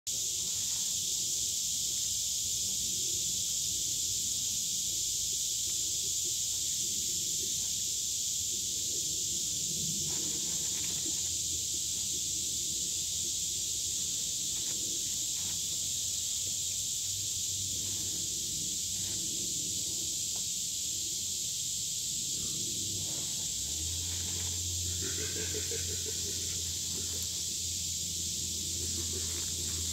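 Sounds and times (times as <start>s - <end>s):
high-pitched insect chorus: 0.1s - 29.9s.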